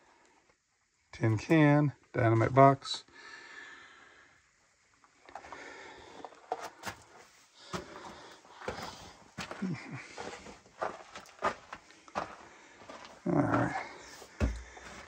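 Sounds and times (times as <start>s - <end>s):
footsteps crunching on rock rubble: 5.2s - 15.0s.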